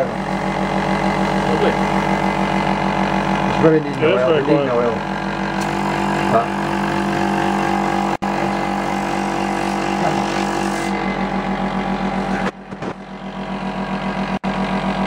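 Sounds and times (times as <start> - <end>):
air compressor humming: 0.0 - 15.0
rapid mechanical pulsing: 0.0 - 15.0.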